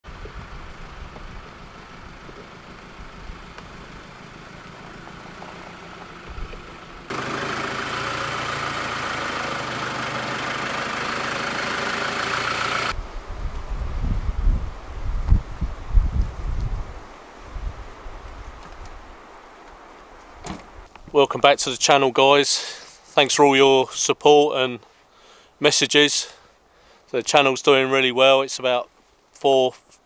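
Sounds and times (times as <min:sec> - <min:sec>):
diesel engine idling: 0:00.1 - 0:13.0.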